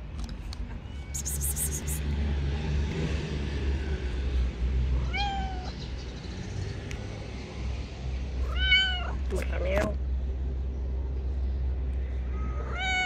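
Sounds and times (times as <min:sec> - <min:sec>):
cat meowing: 0:00.9 - 0:02.0, 0:05.0 - 0:05.8, 0:08.5 - 0:09.2, 0:12.5 - 0:13.0.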